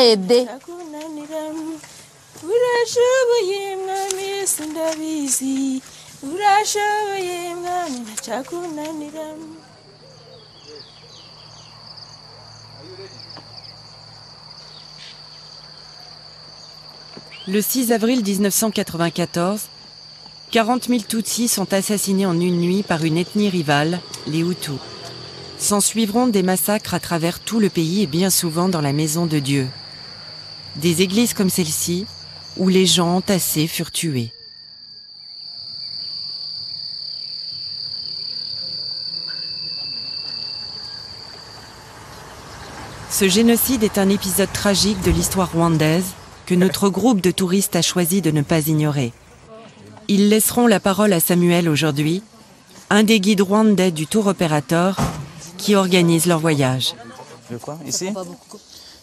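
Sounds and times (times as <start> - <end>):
short insect chirps: 10.2 - 26.0, 27.7 - 45.4
high-pitched insect trilling: 10.4 - 42.6.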